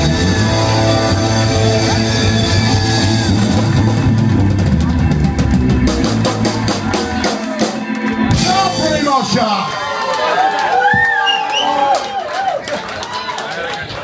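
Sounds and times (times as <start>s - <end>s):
live rock band playing: 0.0s - 9.8s.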